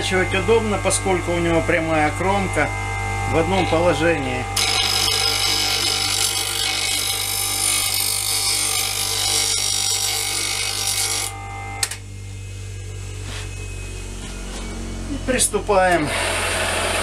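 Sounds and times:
bench grinder motor humming: 0.0 - 17.0
grinding wheel sharpening steel: 4.6 - 11.8.

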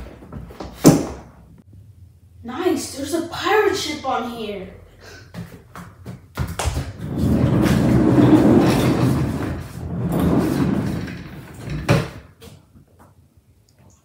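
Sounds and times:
office chair casters rolling: 7.0 - 12.3.

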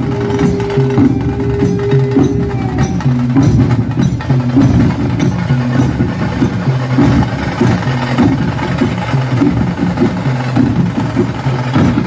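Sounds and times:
percussive background music: 0.0 - 12.0.

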